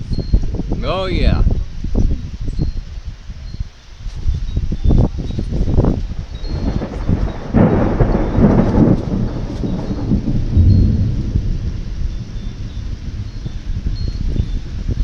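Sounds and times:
thunder rumbling: 0:05.7 - 0:15.0
thunder crack: 0:06.5 - 0:15.0.

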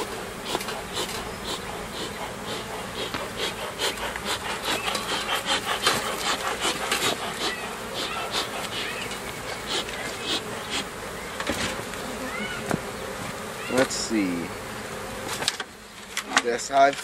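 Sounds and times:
wood scraping on wood: 0:00.0 - 0:12.0
honeybees buzzing: 0:00.0 - 0:17.0.

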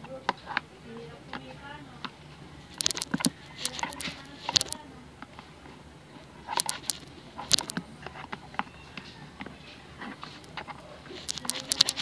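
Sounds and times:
plastic bag crinkling: 0:02.8 - 0:04.8, 0:06.6 - 0:07.8, 0:10.4 - 0:12.0.

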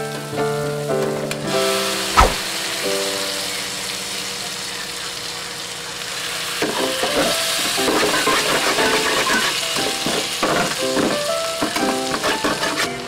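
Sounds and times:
meat sizzling in a wok: 0:02.7 - 0:13.0.

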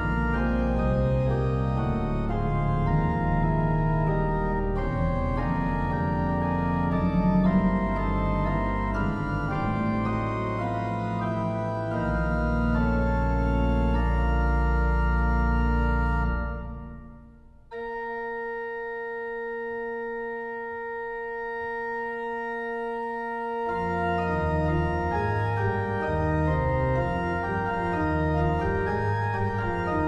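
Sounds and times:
deep bass organ note: 0:00.0 - 0:17.1
church organ chords: 0:00.0 - 0:30.0.

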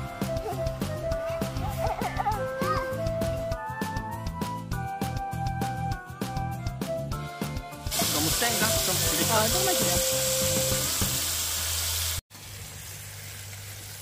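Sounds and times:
music: 0:00.0 - 0:11.6
meat sizzling on griddle: 0:07.9 - 0:14.0.

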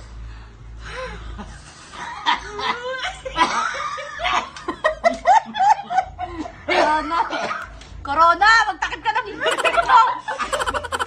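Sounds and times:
people snickering and laughing: 0:09.4 - 0:11.0.

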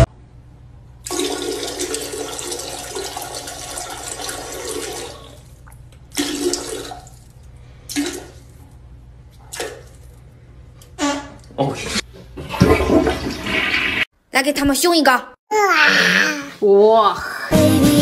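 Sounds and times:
toilet flushing: 0:01.0 - 0:08.6, 0:11.0 - 0:14.1.

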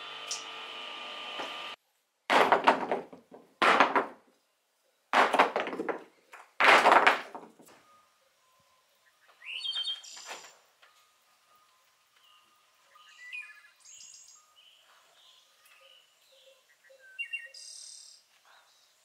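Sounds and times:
wooden blocks clattering on floor: 0:02.3 - 0:04.3, 0:05.2 - 0:07.8.

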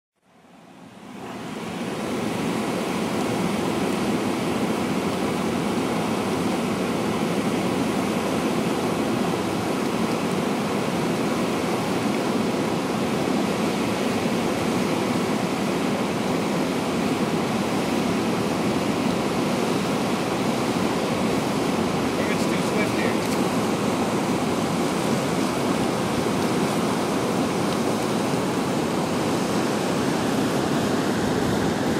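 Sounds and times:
whitewater rushing: 0:00.3 - 0:31.9.

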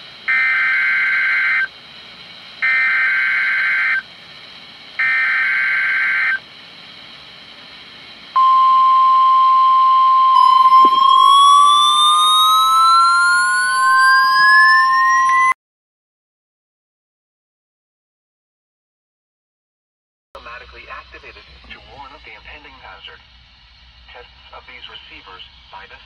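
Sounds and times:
rising tone: 0:08.4 - 0:15.6
steady high alert tone: 0:08.4 - 0:15.6
warbling data tones: 0:08.4 - 0:15.6.

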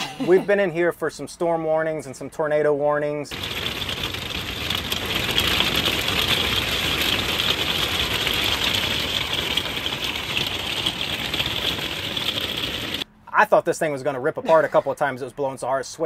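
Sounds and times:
canvas walls flapping and rattling: 0:03.3 - 0:13.1.

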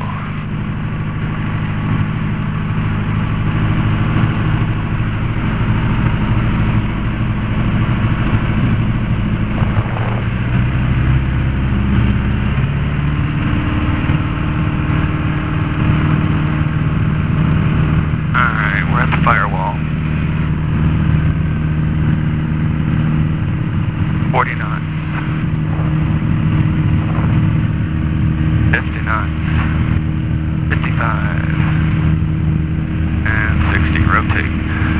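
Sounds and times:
airplane engine and propeller: 0:00.0 - 0:34.9.

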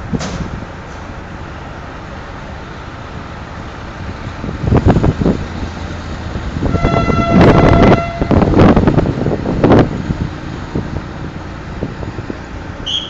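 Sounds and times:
diesel locomotive engine rumble: 0:00.0 - 0:13.0
train horn blast: 0:06.6 - 0:08.8.

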